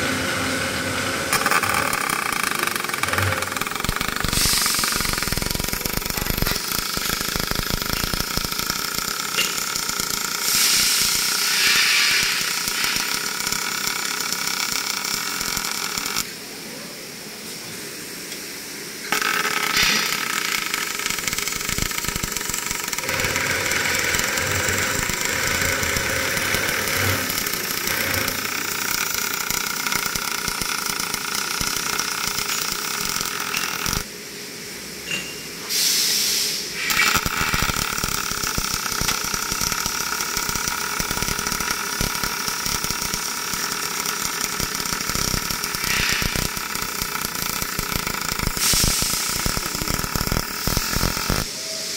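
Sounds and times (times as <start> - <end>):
welding arc crackling: 0.0 - 16.4, 19.0 - 34.1, 36.4 - 51.5
short hiss: 10.5 - 13.0, 35.7 - 37.0.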